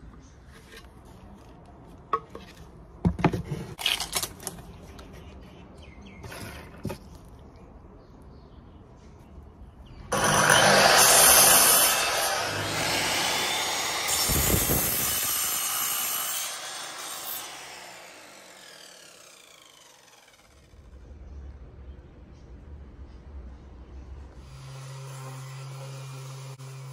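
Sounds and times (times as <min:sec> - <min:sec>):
miter saw cutting board: 0:10.1 - 0:20.7.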